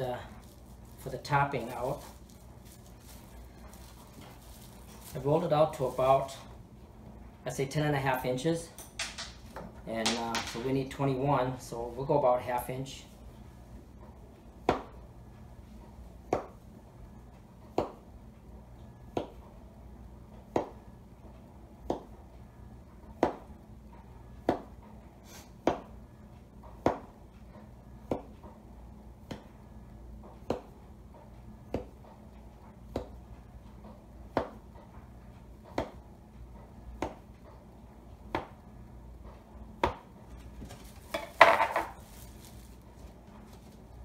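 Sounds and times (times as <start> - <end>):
plastic wrap crinkling: 0.0 - 6.5, 40.4 - 44.0.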